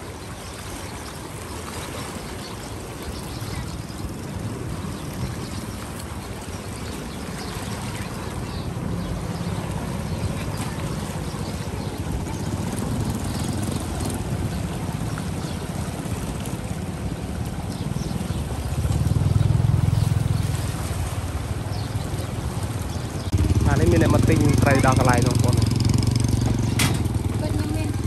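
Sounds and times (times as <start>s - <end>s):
small engine running: 23.4s - 28.0s.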